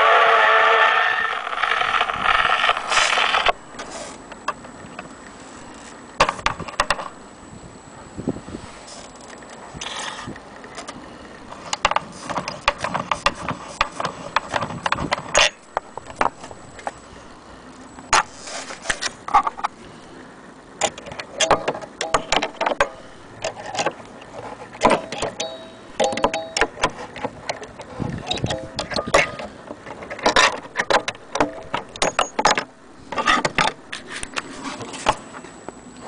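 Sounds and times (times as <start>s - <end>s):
short squeaks: 0.0s - 4.2s
gramophone parts clicking and rattling: 20.8s - 34.5s.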